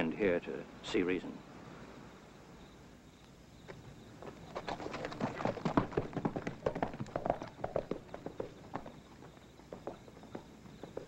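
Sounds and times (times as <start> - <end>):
horse hooves clopping on dirt: 3.6 - 11.0.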